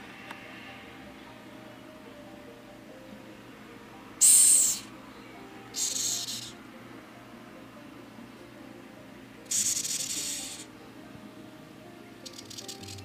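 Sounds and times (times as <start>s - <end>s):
cockroach hissing: 4.2s - 4.9s, 5.8s - 6.6s, 9.5s - 10.7s, 12.3s - 13.0s.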